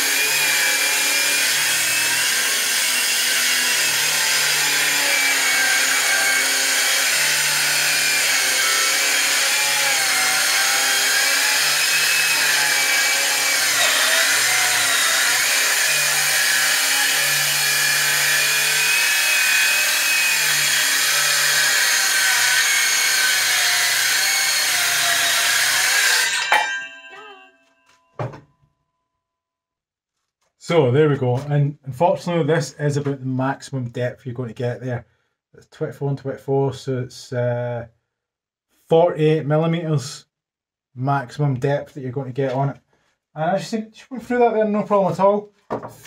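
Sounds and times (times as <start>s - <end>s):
circular saw cutting wood: 0.0s - 27.7s.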